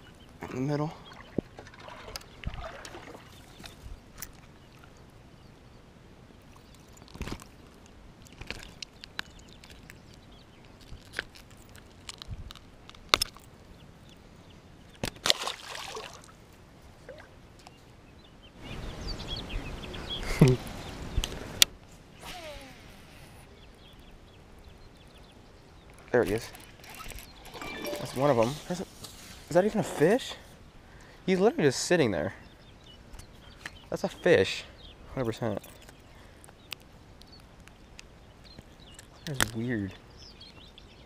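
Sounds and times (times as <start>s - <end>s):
rustling and splashing: 1.0s - 5.0s, 15.0s - 17.4s, 26.3s - 29.6s
water sloshing: 1.1s - 3.8s, 15.2s - 16.4s
fishing rod and reel clicking: 26.3s - 28.4s.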